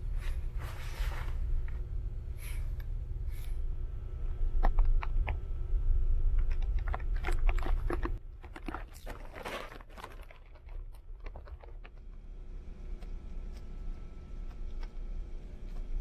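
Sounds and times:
engine rumble: 0.0s - 16.0s
handling clicks and rustles: 6.3s - 12.2s.

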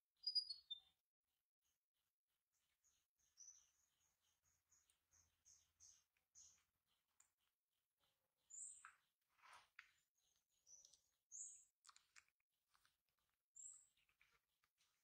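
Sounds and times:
baby monkey squeaking: 0.2s - 0.9s.

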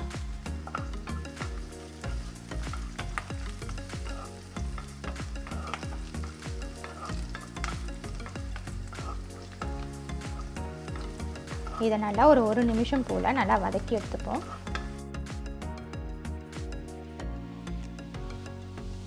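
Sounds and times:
food sizzling in hot oil: 0.0s - 19.0s
wooden spatula scraping a pan: 1.9s - 15.0s.

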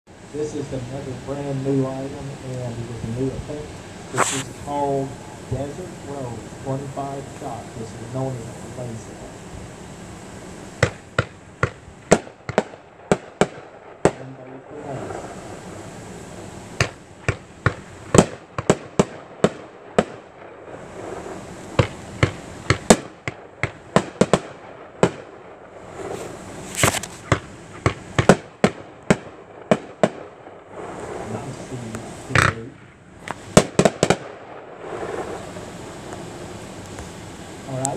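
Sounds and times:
fireworks pops and bangs: 1.6s - 6.0s, 10.6s - 15.6s, 16.7s - 37.2s.

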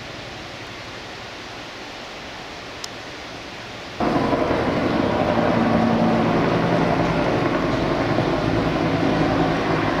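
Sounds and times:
river rushing: 0.0s - 10.0s
wind: 0.0s - 10.0s
helicopter flying overhead: 4.0s - 10.0s.

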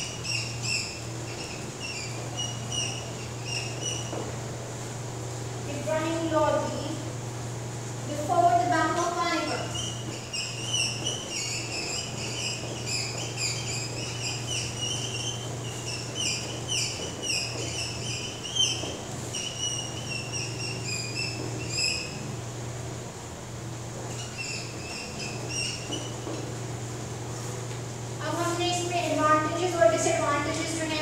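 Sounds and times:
whiteboard marker squeaking: 0.0s - 4.3s, 9.0s - 22.2s, 24.0s - 26.4s
steady low hum: 0.0s - 31.0s.

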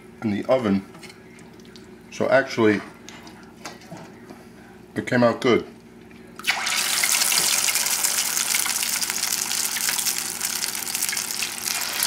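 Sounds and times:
chicken deep-frying in oil: 6.4s - 12.0s.

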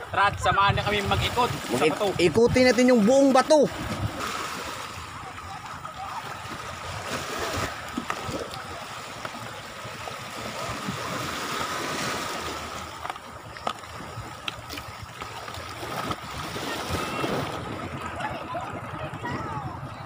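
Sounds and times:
sea water washing against rocks: 0.7s - 20.0s.

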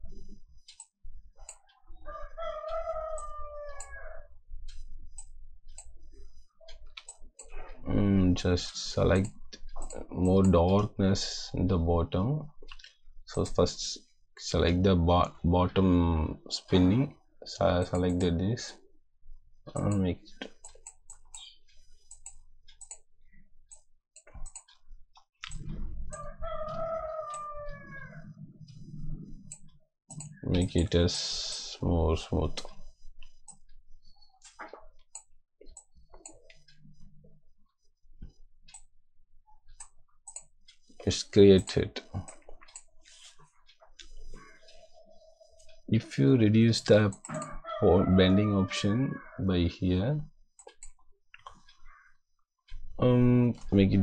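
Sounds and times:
computer mouse clicking: 0.6s - 4.0s, 4.7s - 7.7s, 8.7s - 10.9s, 19.7s - 23.1s, 23.7s - 31.7s, 32.6s - 37.1s, 39.7s - 45.9s, 46.7s - 47.8s, 50.6s - 52.0s.

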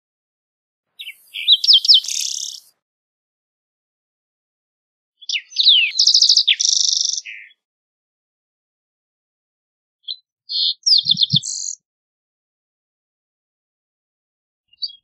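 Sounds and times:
bird whistling with buzzy trill: 1.0s - 2.7s, 5.2s - 7.6s, 10.5s - 11.8s.

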